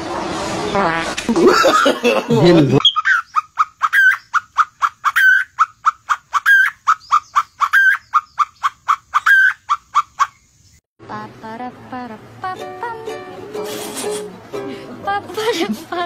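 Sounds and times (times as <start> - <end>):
ukulele music: 11.9 - 16.0
voices: 14.4 - 16.0.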